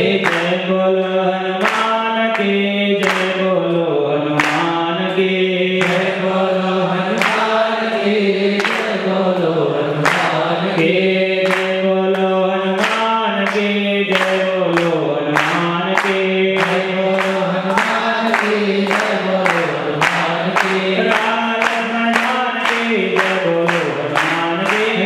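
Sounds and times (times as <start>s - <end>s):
group chanting: 0.0s - 25.0s.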